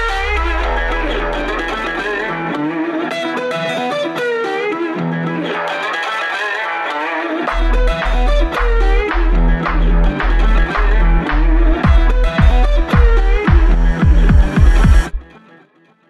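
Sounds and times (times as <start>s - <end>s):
deep bass note: 0.0s - 2.4s, 7.5s - 15.2s
heavy bass beats: 0.0s - 2.5s, 7.5s - 15.2s
melodic lead with bending notes: 0.0s - 15.4s.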